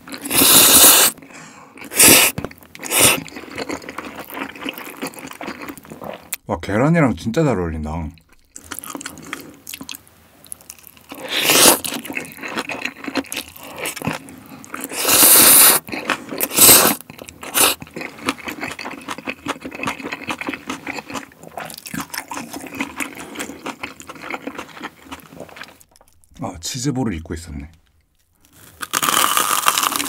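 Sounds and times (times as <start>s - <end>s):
wet chewing with crunches: 0.0s - 6.4s, 8.2s - 26.4s, 28.2s - 30.0s
noodle slurps: 0.2s - 1.2s, 1.8s - 3.9s, 11.2s - 12.4s, 14.8s - 18.8s.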